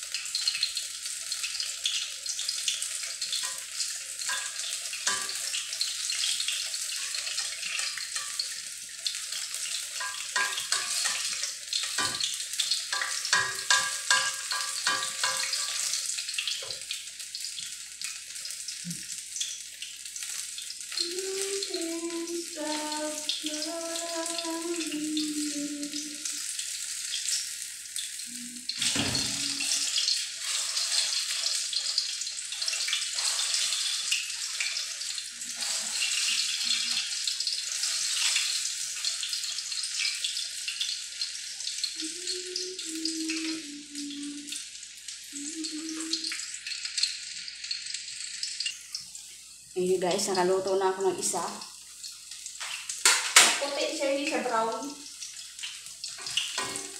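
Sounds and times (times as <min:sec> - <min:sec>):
food deep-frying in oil: 0:00.0 - 0:56.9
metal spatula knocking wok: 0:04.3 - 0:05.5, 0:10.0 - 0:12.3, 0:12.9 - 0:15.9.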